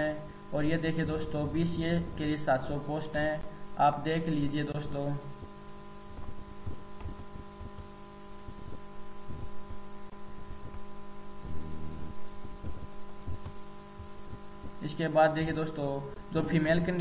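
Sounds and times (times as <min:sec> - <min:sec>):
steady low hum with tones: 0:00.0 - 0:17.0
soft low thumps: 0:05.3 - 0:14.9
brief low throb: 0:11.4 - 0:12.8.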